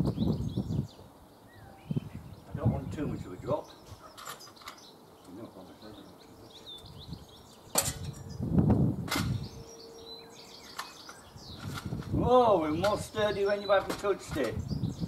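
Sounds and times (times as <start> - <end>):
faint bird chirps: 0.1 - 2.5, 9.3 - 11.8.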